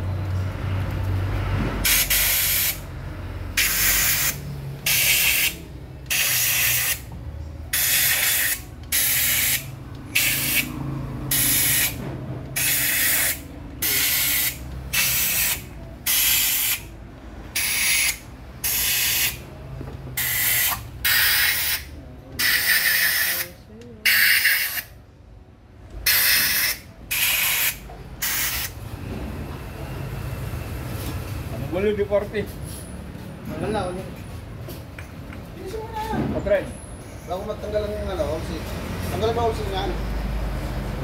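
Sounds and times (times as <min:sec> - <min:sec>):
compressed air hissing blasts: 0:01.8 - 0:02.8, 0:03.6 - 0:07.1, 0:07.7 - 0:10.7, 0:11.3 - 0:12.0, 0:12.6 - 0:16.9, 0:17.6 - 0:19.4, 0:20.2 - 0:24.9, 0:26.0 - 0:28.8.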